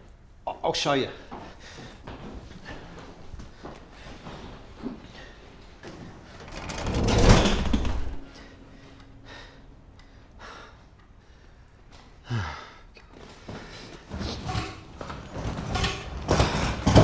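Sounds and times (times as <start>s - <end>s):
soft breaths: 1.1s - 6.5s, 8.2s - 14.5s.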